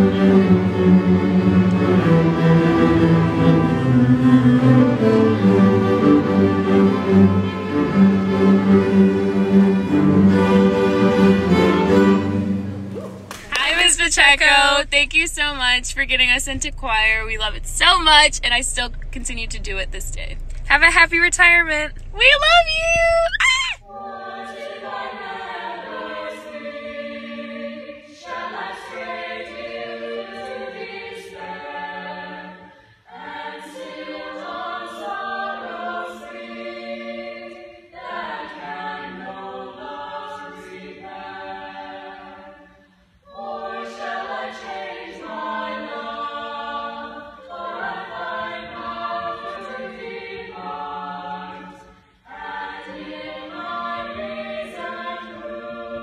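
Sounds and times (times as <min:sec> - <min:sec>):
choir singing: 0:00.0 - 0:13.8, 0:22.4 - 0:56.0.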